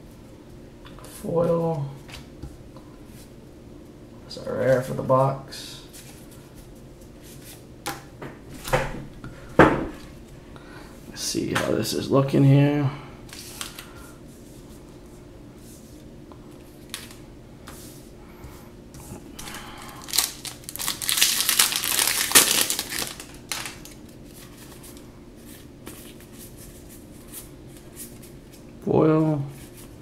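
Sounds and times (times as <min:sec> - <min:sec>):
foil wrapper crinkling and tearing: 0:19.4 - 0:24.2
cards clicking and rustling: 0:19.4 - 0:25.0.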